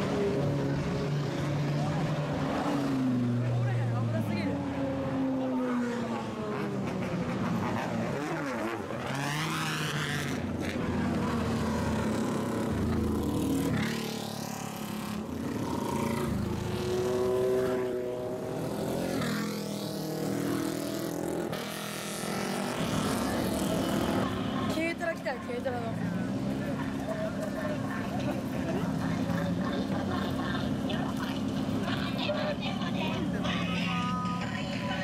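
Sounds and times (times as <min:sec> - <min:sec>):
motorcycle engine revving: 0:05.1 - 0:25.2.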